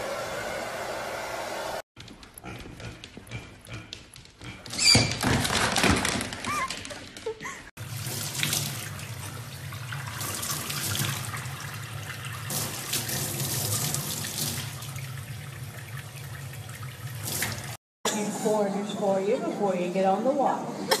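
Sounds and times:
tap water splashing into sink: 0:15.8 - 0:17.8.

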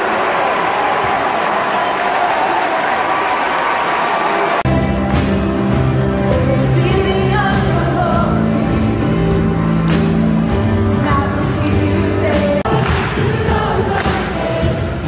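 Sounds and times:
song with singing: 0:10.5 - 0:15.0.

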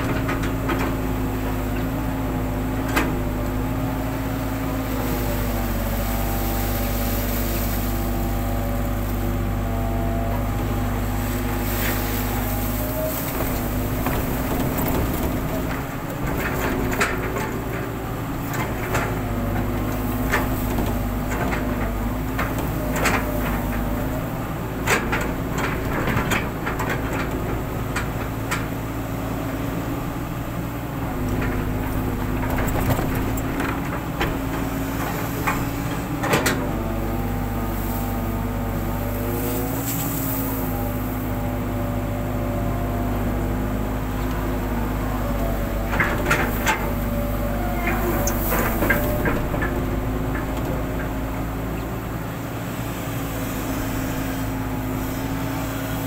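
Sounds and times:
excavator diesel engine running: 0:00.0 - 0:56.0
metallic clanks of excavator bucket: 0:31.0 - 0:42.1, 0:45.4 - 0:52.2.

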